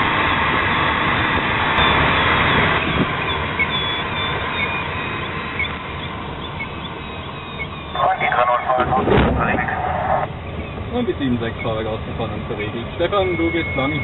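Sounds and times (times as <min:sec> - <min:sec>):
airflow rushing over cockpit: 0:08.0 - 0:10.3.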